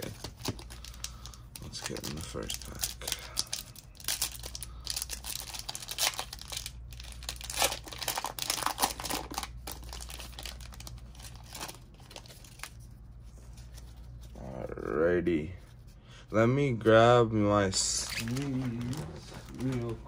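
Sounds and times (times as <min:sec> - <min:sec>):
wrapper crinkling and tearing: 0:00.0 - 0:12.8, 0:17.9 - 0:20.0.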